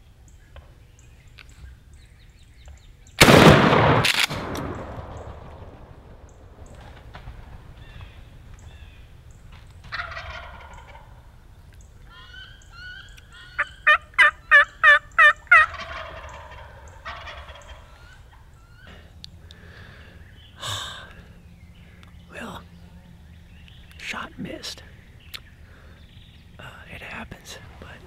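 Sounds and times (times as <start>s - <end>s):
turkey gobbling: 9.8s - 11.4s, 12.0s - 19.0s
turkey yelps: 9.9s - 11.2s, 12.1s - 18.9s.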